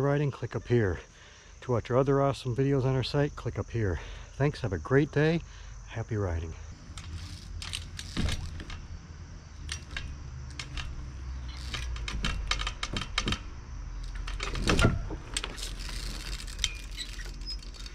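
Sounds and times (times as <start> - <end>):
bike clicks and rattles on wooden deck: 6.7 - 17.9.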